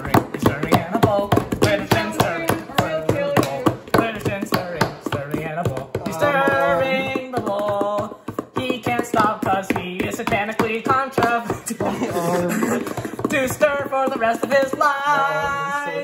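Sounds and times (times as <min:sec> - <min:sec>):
person singing: 0:00.0 - 0:16.0.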